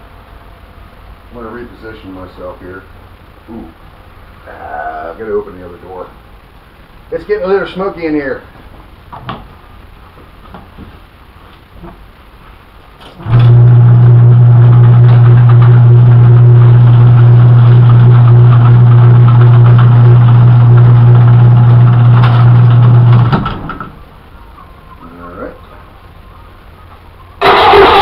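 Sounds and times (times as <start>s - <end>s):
engine starter cranking: 27.4s - 28.0s.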